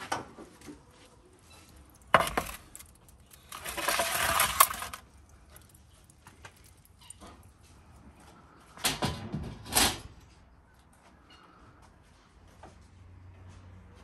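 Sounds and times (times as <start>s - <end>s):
metal tray scraping on stone: 2.1s - 5.0s.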